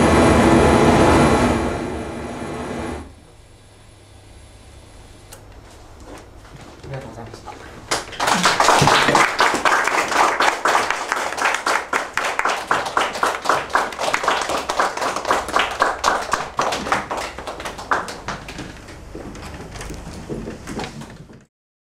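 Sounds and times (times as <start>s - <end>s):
audience applauding: 7.8s - 20.4s.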